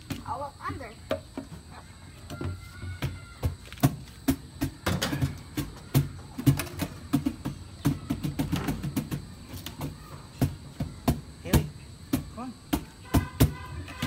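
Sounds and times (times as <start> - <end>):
drum shells knocking: 10.4 - 13.9.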